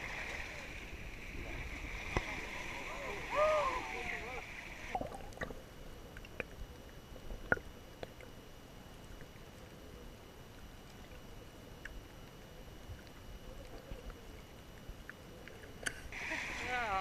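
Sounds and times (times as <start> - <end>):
muffled underwater hiss: 0.0 - 17.0
underwater clicks and ticks: 4.9 - 16.2.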